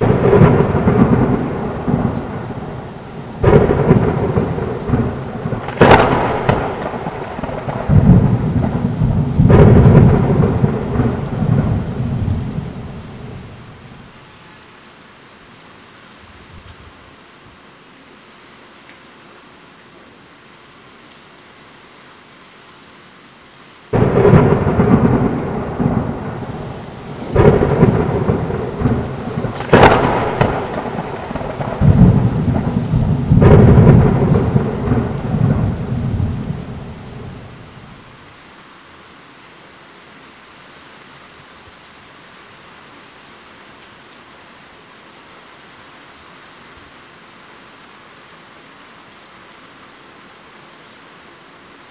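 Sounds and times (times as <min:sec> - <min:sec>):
thunder crashing and rumbling: 0:00.0 - 0:13.9, 0:23.9 - 0:38.0
rain falling: 0:00.0 - 0:51.9.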